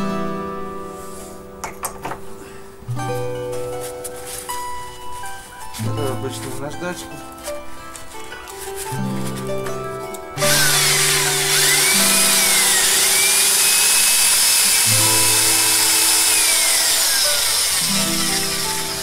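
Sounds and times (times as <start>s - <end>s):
electric drill motor whine: 10.4s - 19.0s
sandpaper hissing on metal: 10.4s - 19.0s.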